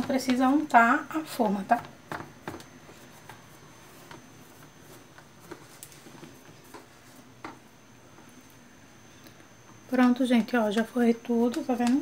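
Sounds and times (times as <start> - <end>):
hands rubbing pastry dough: 0.0 - 8.4.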